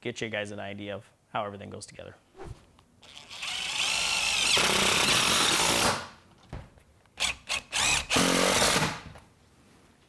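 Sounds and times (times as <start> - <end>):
impact driver driving screws: 7.2 - 9.0.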